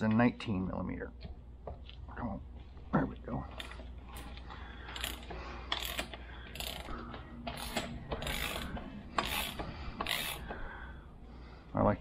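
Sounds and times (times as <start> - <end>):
socket ratchet pawl clicking: 4.9 - 10.6.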